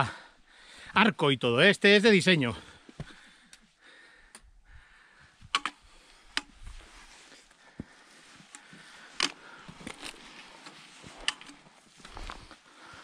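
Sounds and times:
footsteps on rocky ground: 6.6 - 13.0.

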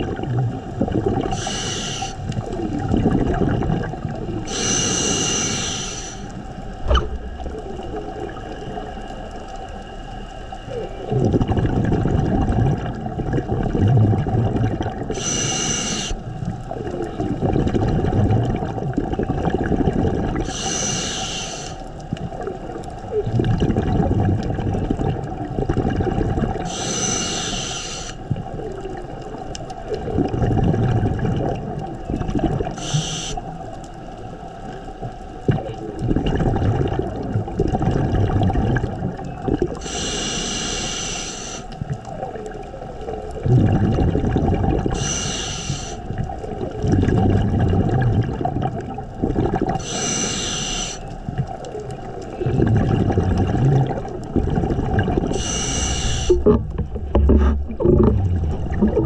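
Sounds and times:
exhaled bubbles burbling: 0.0 - 9.8, 10.7 - 40.6, 41.7 - 59.0
scuba regulator hissing inhale: 1.2 - 2.4, 4.4 - 6.6, 15.1 - 16.3, 20.4 - 22.0, 26.6 - 28.3, 32.7 - 33.6, 39.8 - 41.8, 44.8 - 46.2, 49.8 - 51.2, 55.3 - 56.6.

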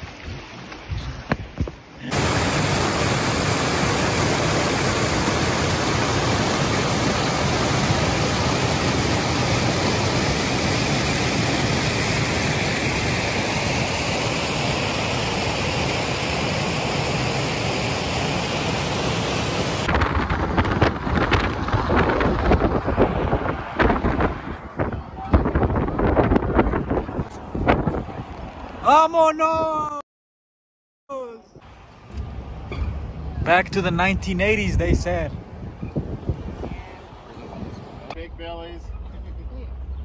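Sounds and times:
wind noise on microphone: 0.0 - 1.8, 19.7 - 28.8, 32.2 - 38.1
waterfall pouring over rock: 2.1 - 19.9.

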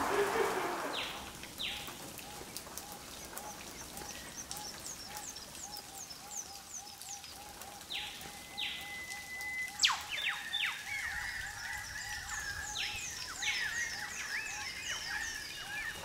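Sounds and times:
long steady bird whistle: 0.0 - 1.8, 7.9 - 16.0
low repeated bird call: 0.0 - 2.4, 3.2 - 16.0
high bird chirps and whistles: 8.5 - 16.0.

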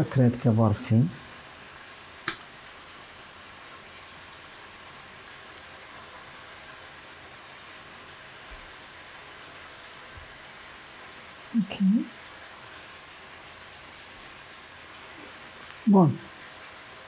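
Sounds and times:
steady hiss: 0.0 - 17.0.

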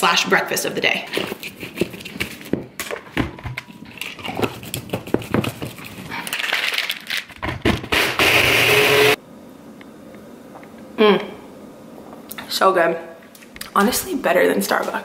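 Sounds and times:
ice rattling: 6.2 - 7.3
blender motor blending ice: 8.0 - 9.2.

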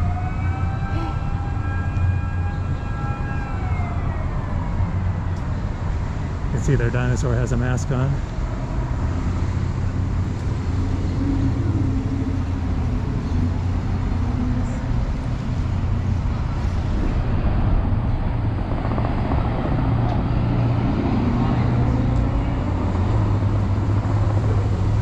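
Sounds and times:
cars passing on street: 0.0 - 25.0.

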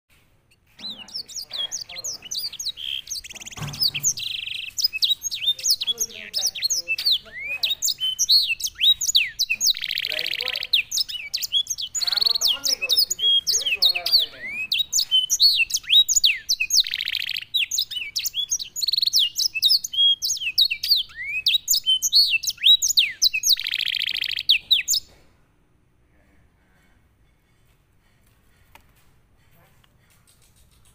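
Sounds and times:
canary singing: 0.5 - 25.1.

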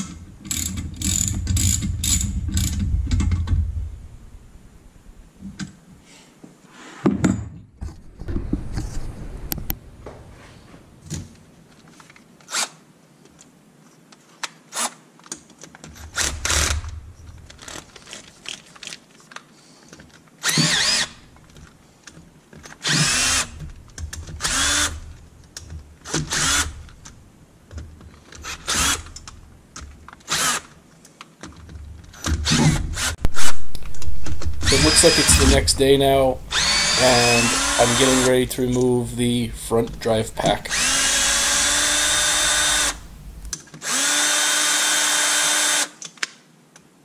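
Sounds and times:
cordless drill running: 20.5 - 21.2, 22.8 - 23.6, 24.4 - 25.0, 34.6 - 35.6, 36.5 - 38.3, 40.6 - 45.9.

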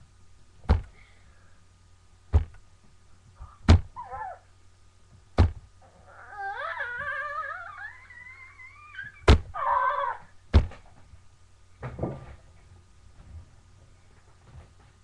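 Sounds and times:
soft bump: 11.8 - 12.4.

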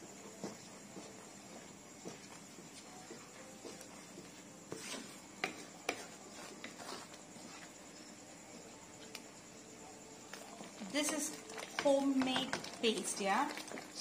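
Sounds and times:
spatula scraping pan: 4.7 - 7.8.

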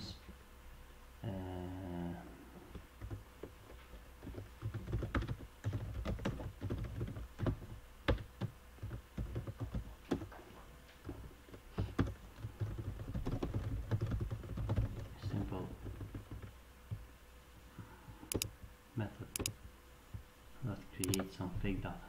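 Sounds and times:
keyboard typing: 4.2 - 10.3, 12.0 - 16.5, 18.3 - 18.5, 21.0 - 21.3.

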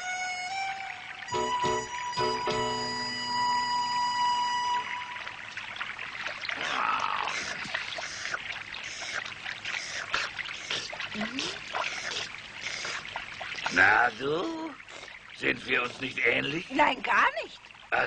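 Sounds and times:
held music chord: 0.0 - 5.3
animal lapping water: 5.2 - 18.0.

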